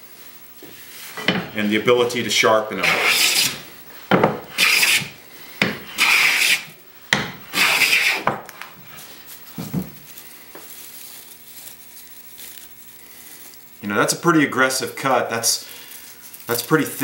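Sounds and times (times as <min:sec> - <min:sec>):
hand plane cutting strokes: 0:02.8 - 0:03.6, 0:04.3 - 0:08.4.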